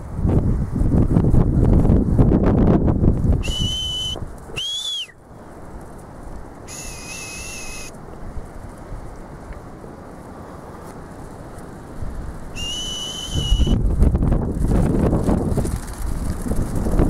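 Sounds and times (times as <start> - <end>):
wind buffeting microphone: 0.0 - 17.0
whistle commands: 3.4 - 5.2, 6.7 - 7.9, 12.6 - 13.8.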